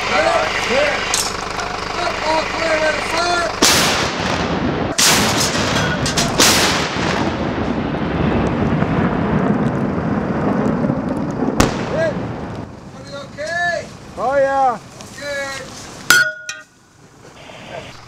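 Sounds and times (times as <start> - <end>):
long rolling rumble: 0.0 - 18.0
tank gun blasts: 3.6 - 8.4, 11.5 - 12.5.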